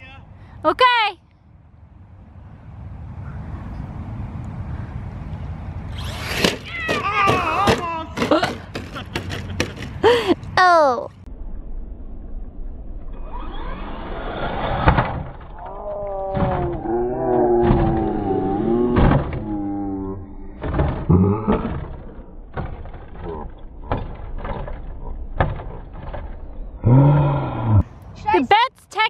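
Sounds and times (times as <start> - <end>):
rc car motor whining: 5.9 - 7.1, 13.1 - 15.8
toy car tumbling thuds: 6.0 - 10.1, 14.7 - 15.7, 16.3 - 26.4.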